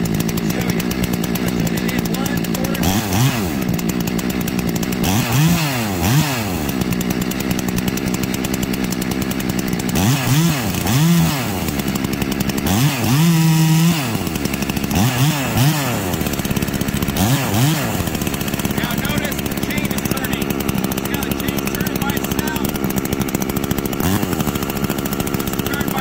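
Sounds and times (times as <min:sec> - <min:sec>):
chainsaw idling: 0:00.0 - 0:26.0
chainsaw revving: 0:00.0 - 0:26.0.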